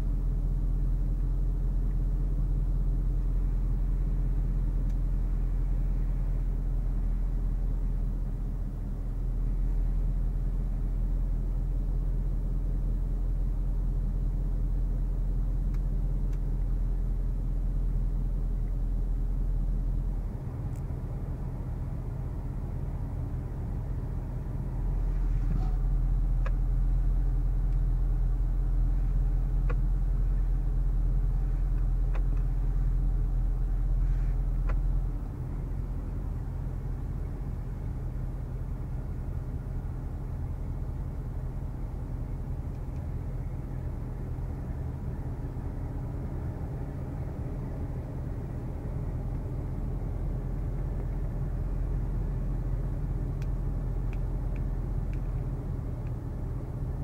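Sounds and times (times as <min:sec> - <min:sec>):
car engine idling: 0:00.0 - 0:57.0
faint dial and button clicks: 0:29.6 - 0:29.9, 0:31.7 - 0:32.5.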